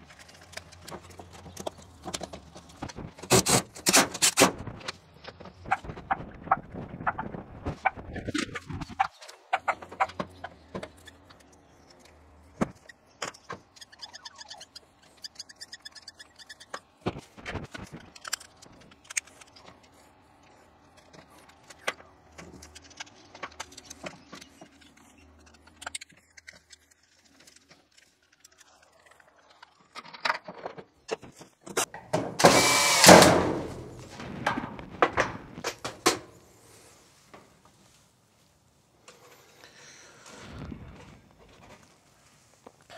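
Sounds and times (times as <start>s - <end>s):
loud burst of noise: 32.4s - 35.0s.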